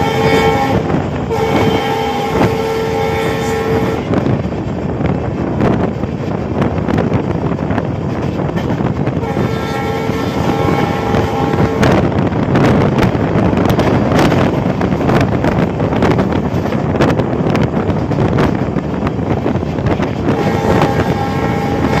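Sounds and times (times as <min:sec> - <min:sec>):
train horn blast: 0:00.0 - 0:04.3, 0:09.2 - 0:12.2, 0:20.2 - 0:22.0
train wheels rumbling on track: 0:00.0 - 0:22.0.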